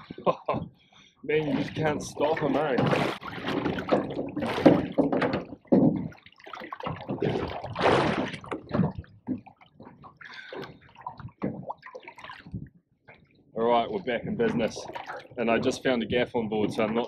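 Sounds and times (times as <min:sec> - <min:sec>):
water sloshing and splashing: 0:00.0 - 0:17.0
scattered knocks: 0:03.6 - 0:06.2, 0:08.5 - 0:10.0.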